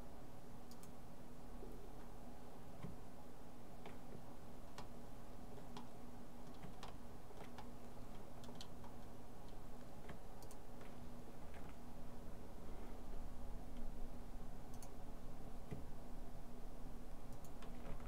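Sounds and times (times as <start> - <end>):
faint steady hum: 0.0 - 18.0
computer mouse clicks: 0.7 - 1.0, 5.6 - 10.9, 14.7 - 15.0, 17.3 - 18.0.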